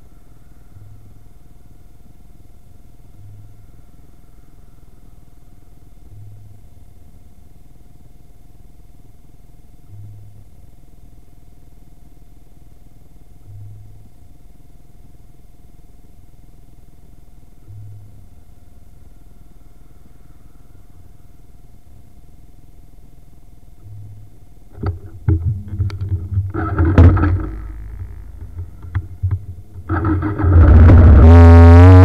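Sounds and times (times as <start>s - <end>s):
music: 0.0s - 30.0s
motorcycle engine idling and revving: 25.9s - 32.0s.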